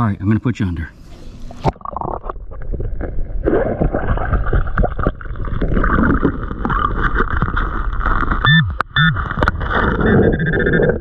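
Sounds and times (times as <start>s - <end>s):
water rushing underwater: 1.5s - 11.0s
hands digging in sand underwater: 3.5s - 10.3s.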